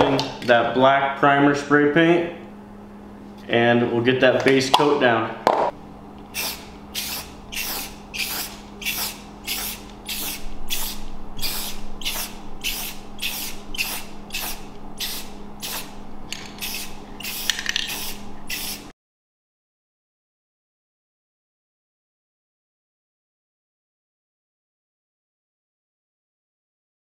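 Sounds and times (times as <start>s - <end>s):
spray can hissing: 6.3s - 16.0s, 16.6s - 18.9s.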